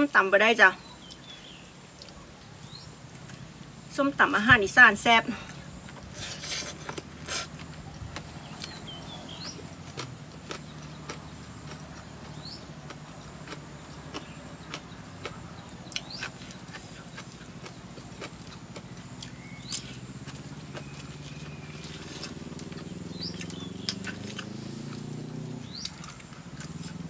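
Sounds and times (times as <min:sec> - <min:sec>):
steady low hum: 0:00.8 - 0:27.0
chewing crunches: 0:05.5 - 0:27.0
bird chirps: 0:08.3 - 0:09.9, 0:18.8 - 0:24.6.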